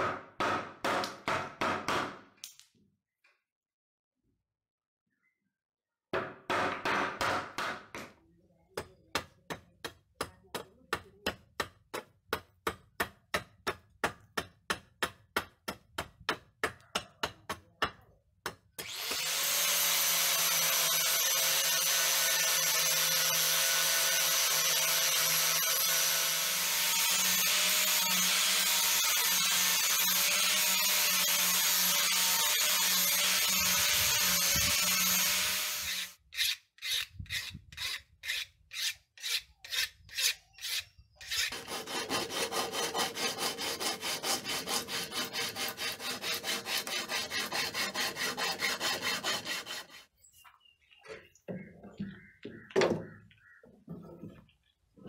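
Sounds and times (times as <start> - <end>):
hand saw cutting wood: 18.7 - 50.1
angle grinder sanding wood: 18.8 - 50.0.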